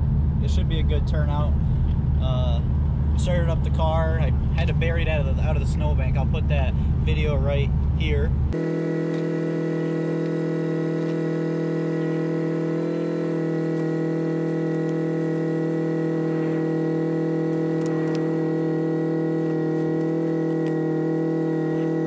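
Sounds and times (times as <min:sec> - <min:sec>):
sustained synth chord: 0:08.5 - 0:22.0.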